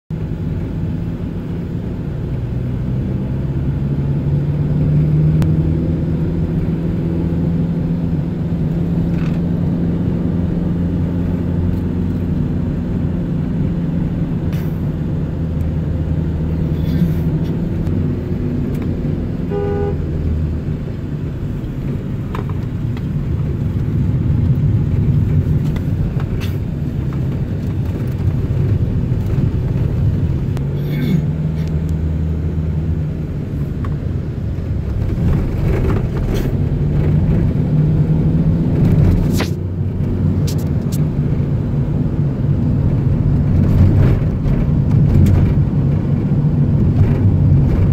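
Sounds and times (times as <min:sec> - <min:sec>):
car engine drone: 0:00.1 - 0:47.9
road noise: 0:00.1 - 0:47.9
car horn beep: 0:19.4 - 0:20.1.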